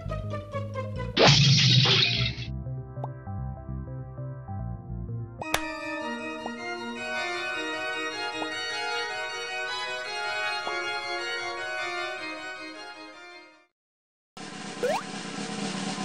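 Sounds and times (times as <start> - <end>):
organ-like keyboard tune: 5.4 - 12.8.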